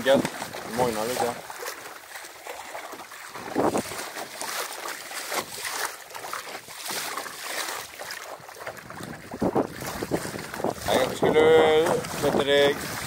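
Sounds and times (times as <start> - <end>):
water splashing along a hull: 0.0 - 13.0
wind buffeting microphone: 3.3 - 4.2, 8.4 - 13.0.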